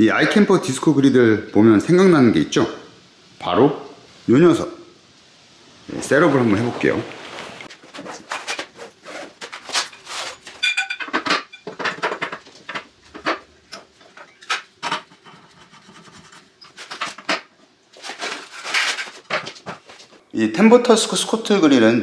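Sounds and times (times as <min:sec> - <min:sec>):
fabric bag rustling: 0:06.3 - 0:10.4
metal parts clattering: 0:09.5 - 0:15.5, 0:18.0 - 0:19.8.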